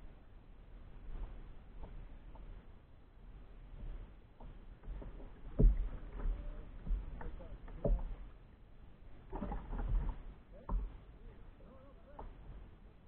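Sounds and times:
small waves slapping kayak hull: 3.6 - 13.0.

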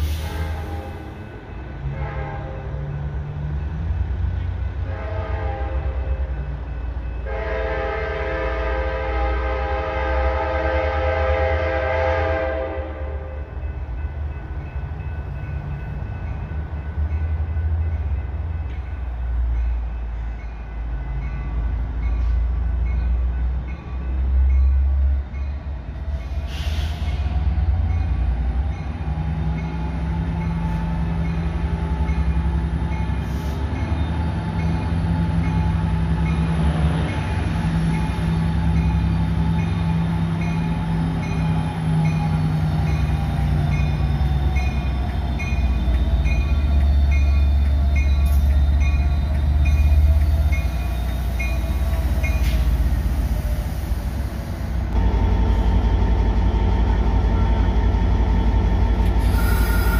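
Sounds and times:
rising whine of train: 0.0 - 59.9
train horn blasts: 1.8 - 2.9, 4.8 - 6.3, 7.2 - 13.5
short hiss: 59.1 - 59.9.

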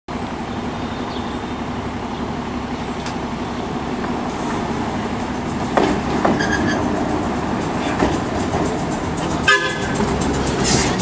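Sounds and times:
trolley car rumbling on track: 0.1 - 11.0.

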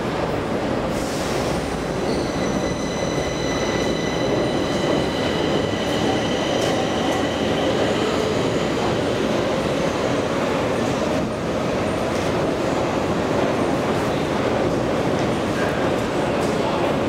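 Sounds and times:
wheels squealing on rails: 1.0 - 10.9.

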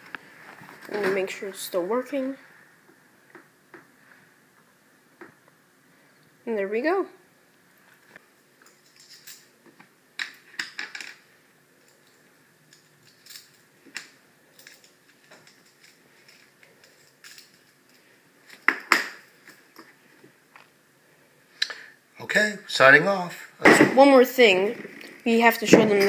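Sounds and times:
metal tools clinking on wood: 8.6 - 9.5, 11.8 - 13.7, 14.5 - 18.0.

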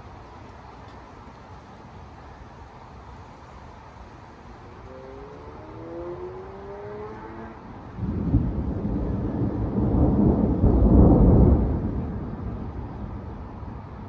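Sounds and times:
thunder rumbling: 5.2 - 14.0.

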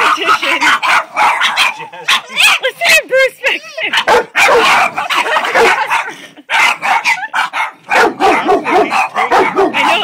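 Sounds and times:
dogs barking: 0.0 - 2.8, 3.8 - 10.0.

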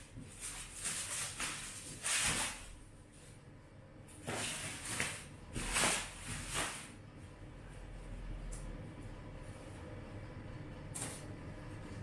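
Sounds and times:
plastic wrap crinkling: 0.0 - 2.8.

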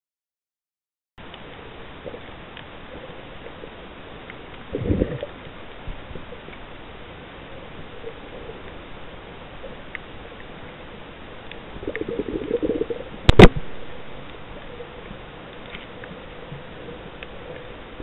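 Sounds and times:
faint clicks: 1.2 - 2.7, 9.8 - 10.8, 11.4 - 12.6, 14.2 - 17.8
low underwater hiss: 1.2 - 18.0
rough low rumble: 4.6 - 6.3, 11.7 - 15.4.

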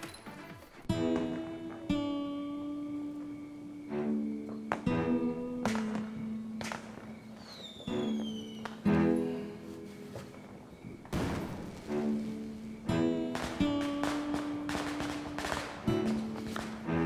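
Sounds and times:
plucked guitar notes: 0.9 - 7.0.

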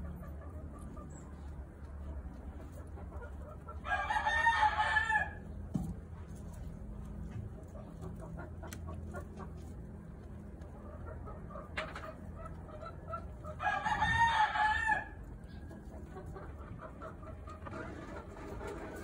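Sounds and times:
low steady hum: 0.0 - 19.0
rooster crowing: 3.8 - 5.4, 13.6 - 15.2.

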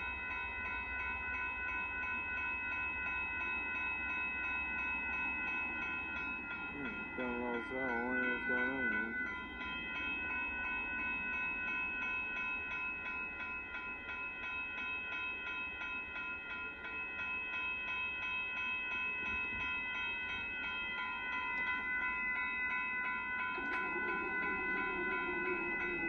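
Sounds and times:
railroad crossing bell ringing: 0.0 - 26.0.

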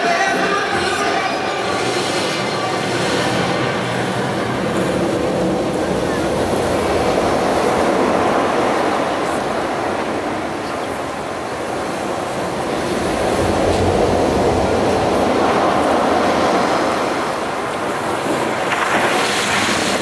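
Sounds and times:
rushing rumbling soundtrack: 0.2 - 20.0.

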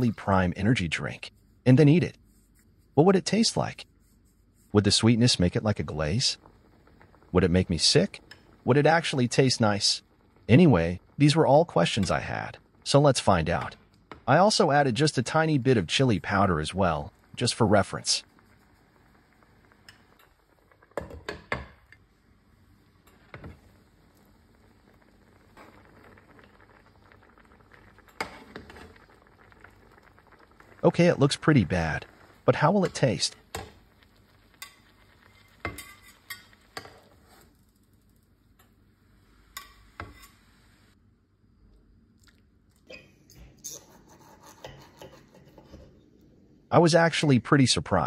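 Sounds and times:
metal spatula clinking on pan and plate: 35.6 - 37.0.

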